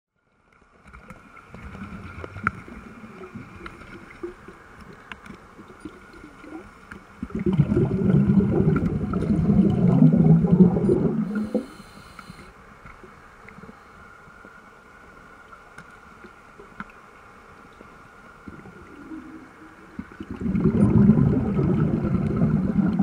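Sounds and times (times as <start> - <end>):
underwater air bubbling: 5.6 - 12.5, 18.4 - 23.0.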